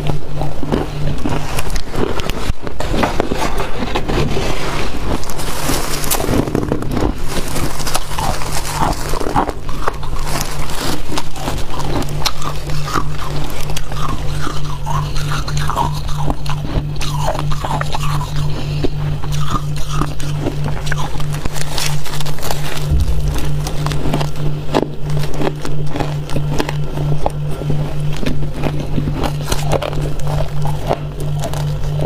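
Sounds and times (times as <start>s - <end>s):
crunching and chewing frost: 0.0s - 32.0s
scraping frost: 0.9s - 13.7s.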